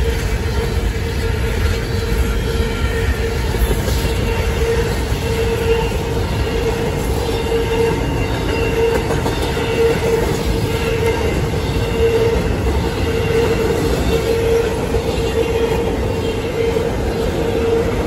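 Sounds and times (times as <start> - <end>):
train wheels rumbling on rails: 0.0 - 18.0.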